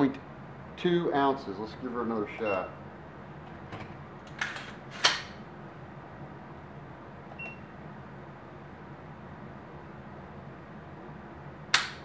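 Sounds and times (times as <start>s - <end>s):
metallic snap of gun hammer: 11.7s - 12.0s.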